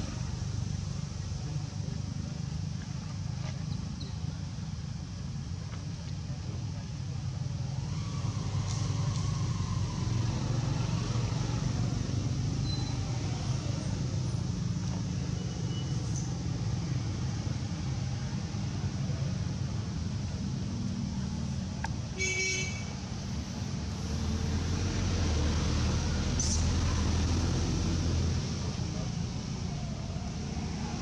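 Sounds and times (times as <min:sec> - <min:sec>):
passing motor traffic rumble: 0:00.0 - 0:31.0.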